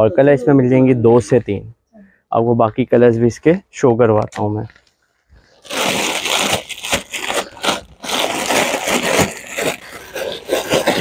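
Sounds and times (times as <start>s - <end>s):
sequined net fabric crinkling: 4.6s - 11.0s.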